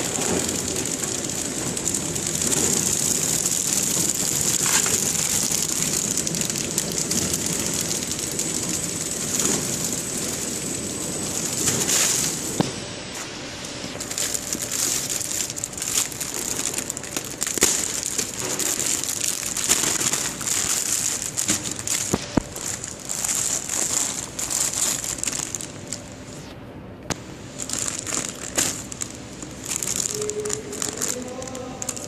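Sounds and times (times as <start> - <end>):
plastic film crinkling: 0.0 - 26.5, 27.1 - 32.0.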